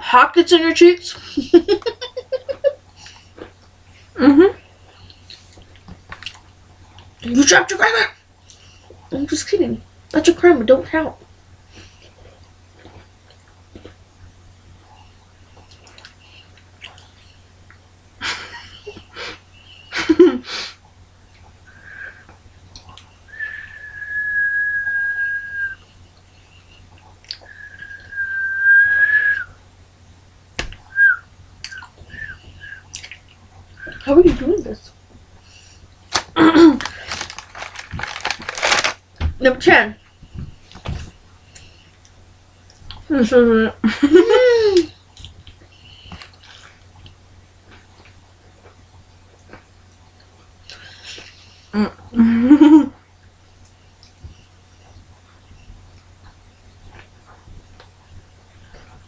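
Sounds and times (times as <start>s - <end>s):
breathy hiss: 18.2s - 20.8s, 21.6s - 22.3s
person whistling: 21.7s - 22.2s, 23.3s - 25.8s, 27.4s - 29.5s, 30.9s - 32.8s
wobbly whistled chirps: 21.7s - 22.3s, 23.3s - 29.6s, 30.9s - 33.1s
mouth clicks: 30.6s - 34.0s
chewing crackers: 36.1s - 39.0s.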